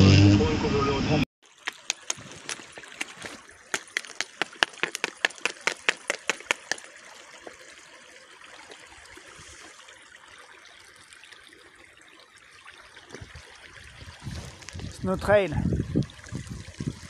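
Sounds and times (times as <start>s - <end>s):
small stream trickling: 1.4s - 17.0s
footsteps crunching on snow: 1.6s - 6.8s.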